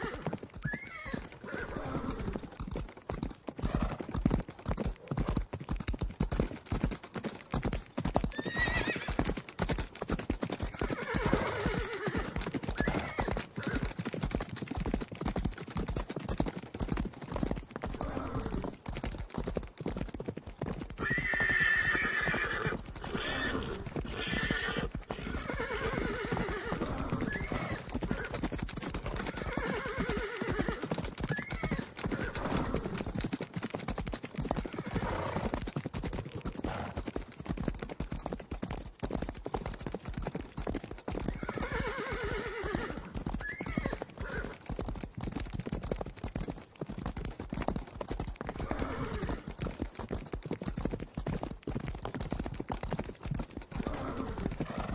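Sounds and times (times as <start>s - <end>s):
horses neighing: 0.0s - 2.5s, 8.3s - 9.3s, 10.6s - 14.0s, 17.8s - 18.8s, 21.0s - 28.5s, 29.2s - 33.0s, 34.6s - 35.5s, 41.3s - 44.7s, 48.5s - 49.6s, 53.7s - 54.9s
hooves galloping: 0.0s - 54.9s.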